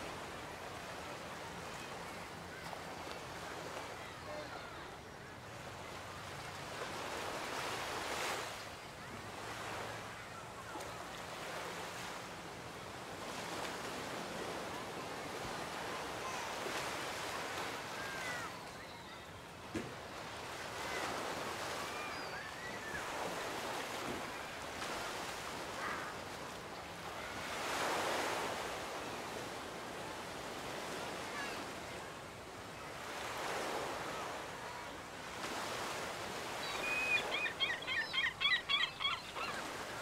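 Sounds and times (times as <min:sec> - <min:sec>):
ocean waves washing on beach: 0:00.0 - 0:37.7
bird calling rapidly: 0:36.6 - 0:40.0.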